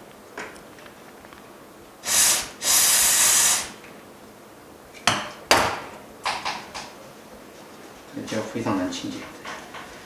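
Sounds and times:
aerosol spray hiss: 2.0s - 3.8s.

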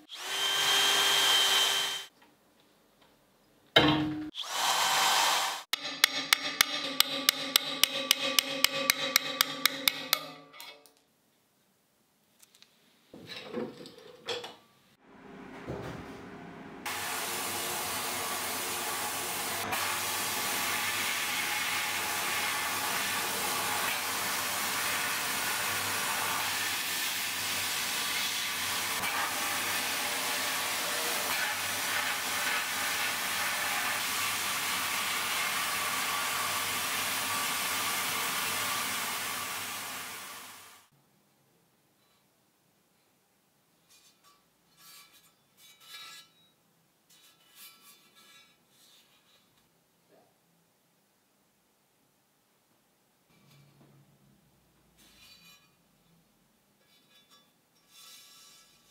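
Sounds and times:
sandblasting gun hissing: 16.9s - 40.8s.

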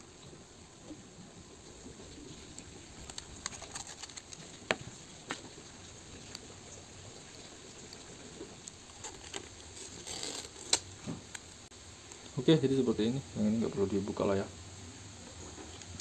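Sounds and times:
paper crackling: 2.4s - 6.5s, 7.7s - 11.7s
small clicks and scrapes: 2.5s - 6.5s, 7.3s - 12.3s, 15.4s - 16.0s.

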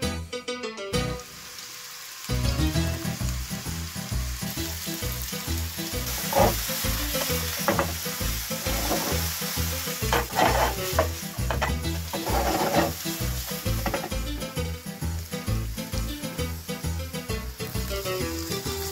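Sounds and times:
onions sizzling in oil: 1.0s - 18.9s
wooden spatula scraping pan: 6.1s - 8.0s, 8.6s - 9.3s, 10.0s - 14.2s
background music with low beat: 13.3s - 18.9s.

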